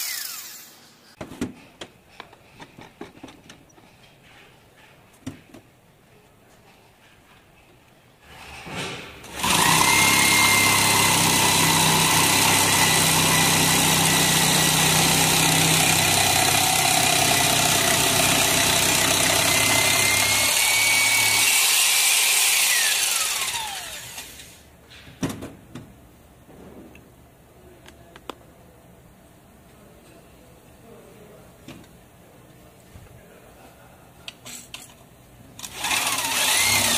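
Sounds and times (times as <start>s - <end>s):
electric drill whining: 0.0s - 0.9s, 9.3s - 24.6s, 35.6s - 36.9s
saw blade cutting wood: 0.0s - 1.0s, 9.3s - 24.6s, 35.7s - 36.9s.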